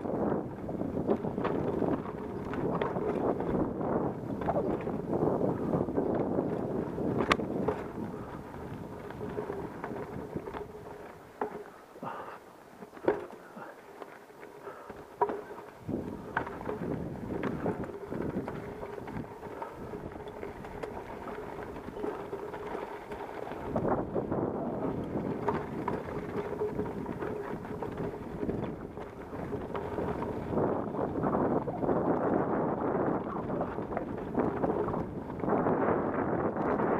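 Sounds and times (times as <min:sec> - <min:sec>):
wind noise on microphone: 0:00.0 - 0:11.3, 0:14.6 - 0:36.9
bike rattling: 0:00.0 - 0:36.9
tyres crunching over gravel: 0:00.0 - 0:36.9.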